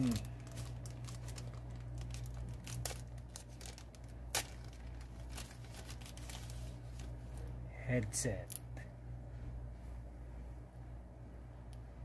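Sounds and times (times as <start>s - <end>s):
paper and plastic rustling: 0.0s - 7.4s
steady low hum: 0.0s - 12.0s.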